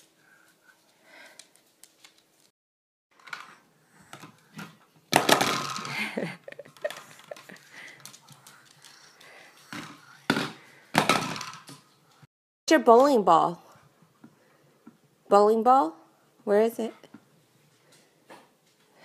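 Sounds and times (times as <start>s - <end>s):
plastic balls rattling: 5.1s - 6.2s
plastic pins clattering on floor: 5.1s - 7.5s, 10.3s - 11.8s.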